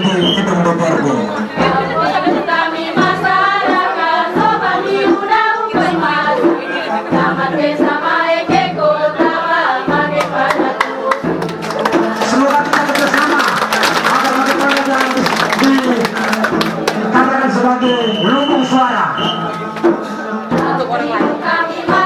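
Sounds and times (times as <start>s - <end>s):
song with singing voices: 0.0s - 22.0s
sharp claps: 10.2s - 18.2s.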